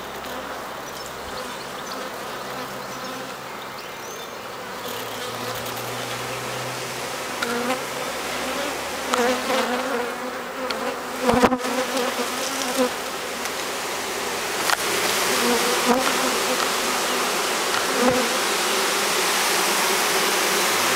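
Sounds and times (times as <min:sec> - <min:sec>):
bee swarm humming: 0:00.0 - 0:20.9
single bee buzzing past: 0:00.1 - 0:20.9.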